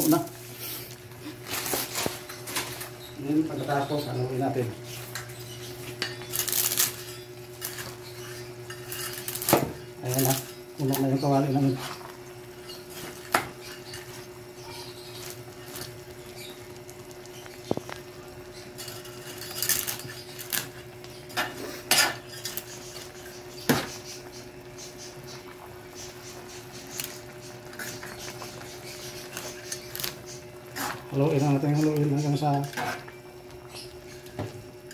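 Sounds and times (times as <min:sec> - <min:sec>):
utensils scraping metal wok: 0:05.9 - 0:12.0, 0:29.0 - 0:33.1.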